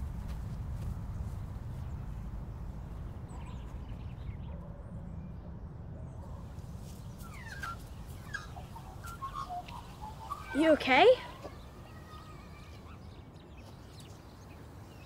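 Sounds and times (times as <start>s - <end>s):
low rumble of wind or traffic: 0.0s - 15.0s
faint high bird chirps: 6.3s - 15.0s.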